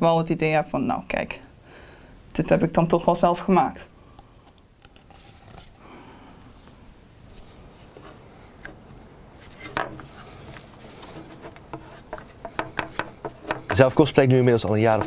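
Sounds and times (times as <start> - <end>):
rubbing sounds: 9.3 - 15.0.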